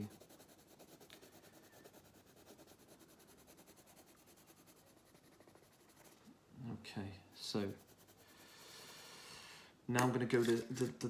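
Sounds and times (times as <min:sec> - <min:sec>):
pencil scratching on paper: 0:00.0 - 0:06.3, 0:07.3 - 0:09.0.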